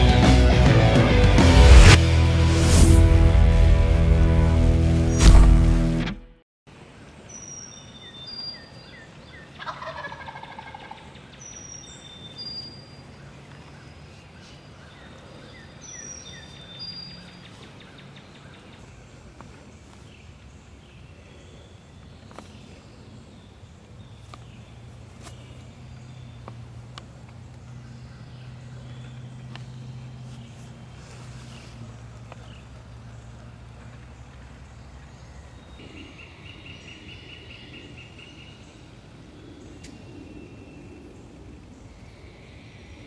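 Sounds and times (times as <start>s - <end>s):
songbirds singing: 6.9s - 43.0s
turkey gobbling: 9.5s - 11.0s.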